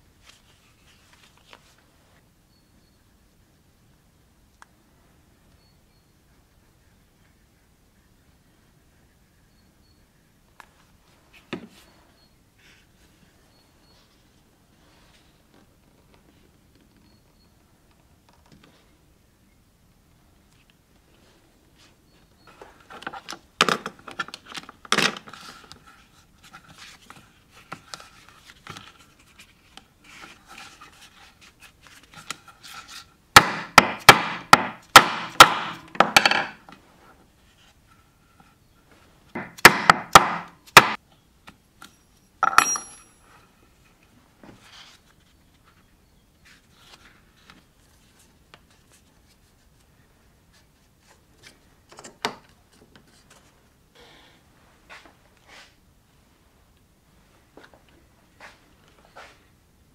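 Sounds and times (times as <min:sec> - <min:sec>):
mallet knocking on leather chisel: 0:33.4 - 0:36.5, 0:39.4 - 0:41.0
handling noise: 0:41.8 - 0:43.3
metallic ring: 0:41.9 - 0:43.3.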